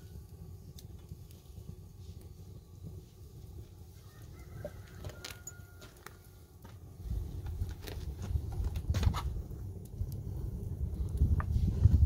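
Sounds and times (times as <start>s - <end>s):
wood fire crackling: 0.0s - 12.0s
low rumble: 7.1s - 12.0s.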